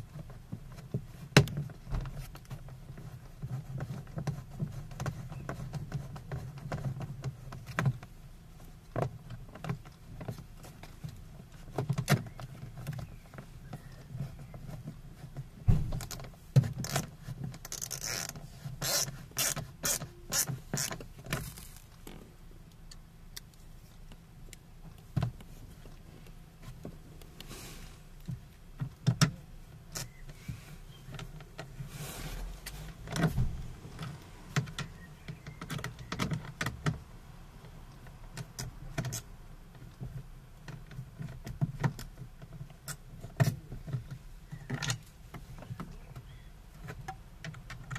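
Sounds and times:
scraping rustle: 0.0s - 22.6s, 23.5s - 36.6s.

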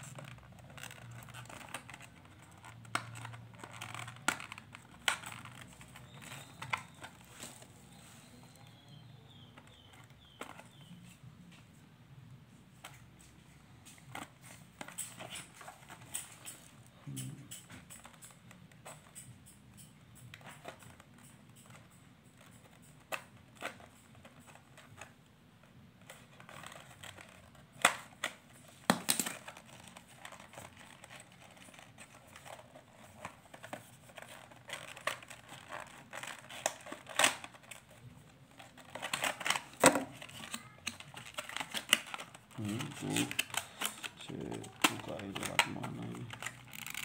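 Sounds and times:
plastic packaging crinkling: 0.0s - 11.0s, 26.0s - 47.0s.

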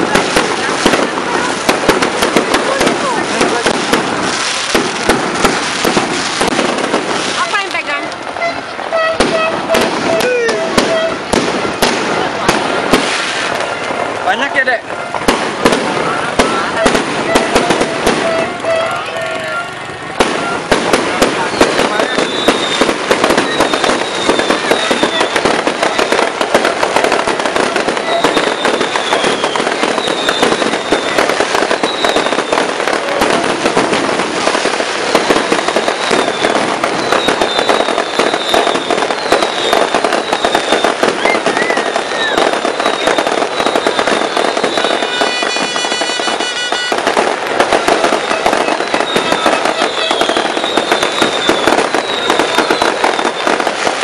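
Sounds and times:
fireworks exploding: 0.0s - 54.0s.

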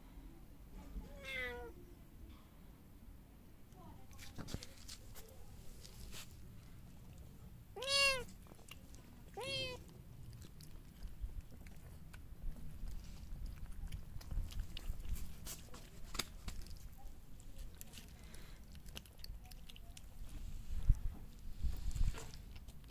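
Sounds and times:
cat meowing: 1.1s - 1.8s, 7.8s - 8.3s, 9.3s - 9.9s.

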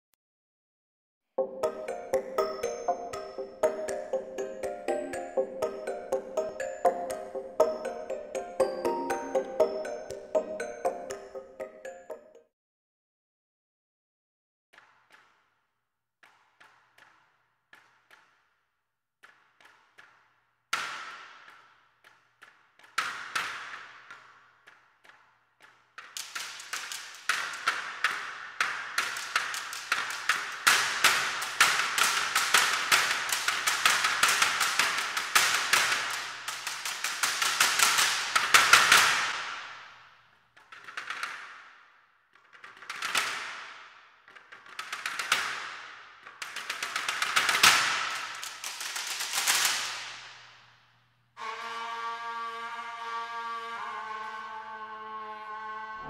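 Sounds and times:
bamboo sticks clacking: 19.2s - 39.8s, 42.4s - 50.3s.

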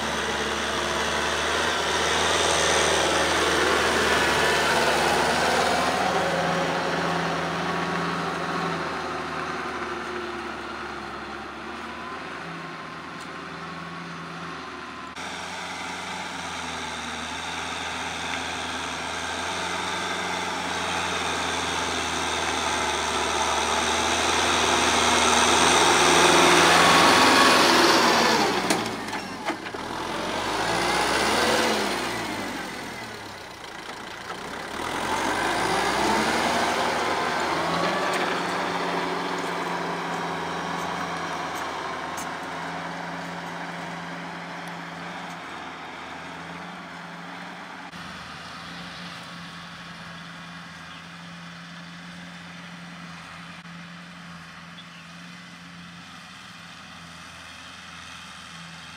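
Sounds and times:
tractor diesel engine running: 0.0s - 58.9s.

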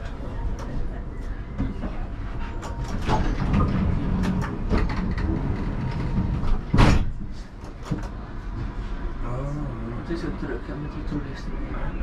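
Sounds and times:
tram low rumble: 0.0s - 12.0s
loud clunk: 6.6s - 7.2s.

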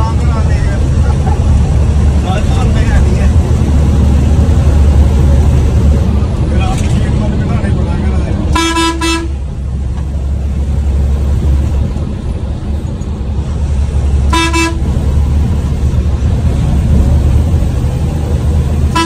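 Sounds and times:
bus engine droning: 0.0s - 19.0s
road noise: 0.0s - 19.0s
bus horn honk: 8.5s - 9.5s, 14.2s - 15.0s.

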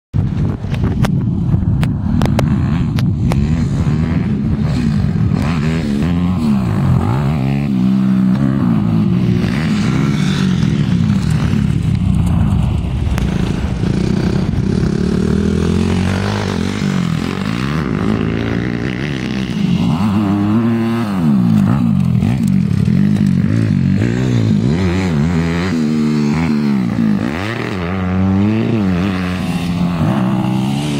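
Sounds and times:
dirt bike engines revving: 1.6s - 30.9s.

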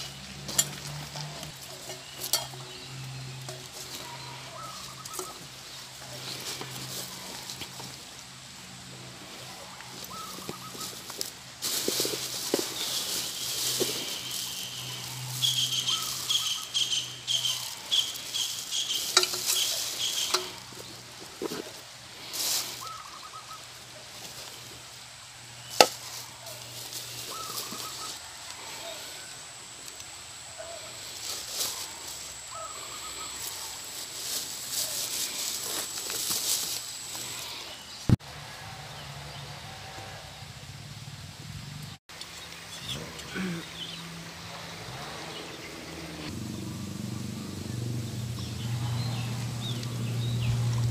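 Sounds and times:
plastic bags rustling: 9.3s - 24.8s, 33.3s - 37.5s
chirping: 12.8s - 20.7s.

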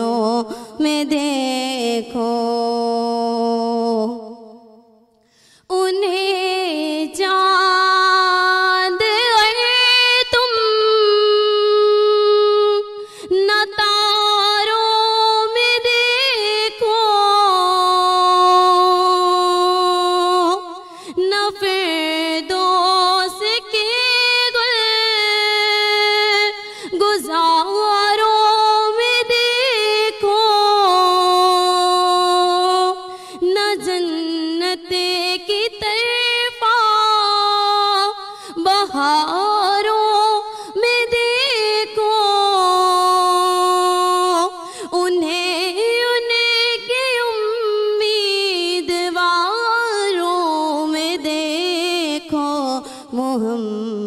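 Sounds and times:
woman singing into microphone: 0.0s - 4.8s, 5.5s - 54.0s
singer breathing: 5.2s - 5.7s, 13.0s - 13.3s, 20.8s - 21.2s, 26.6s - 27.0s, 33.0s - 33.4s, 38.2s - 38.6s, 40.4s - 40.8s, 44.6s - 45.0s, 52.8s - 53.2s.

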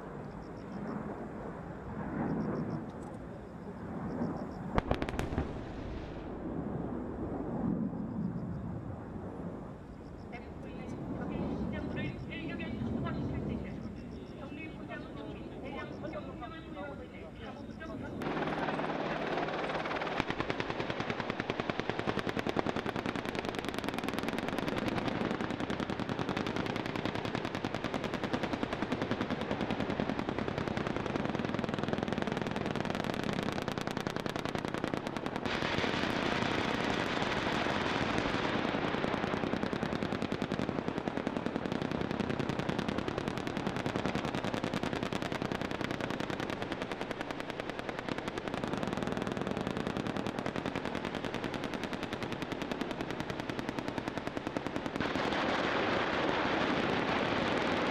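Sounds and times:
rapid machine-gun fire: 4.8s - 5.7s, 18.2s - 57.9s.

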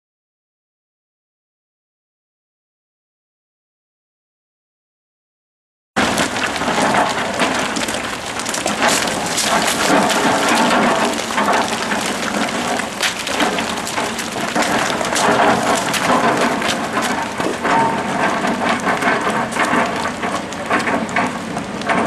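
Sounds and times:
gravel crunching under wheels: 6.0s - 22.0s.

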